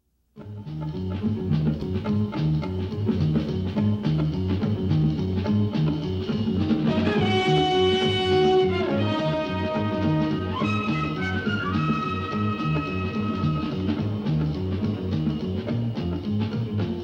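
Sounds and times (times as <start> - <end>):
instrumental theme music: 0.4 - 17.0.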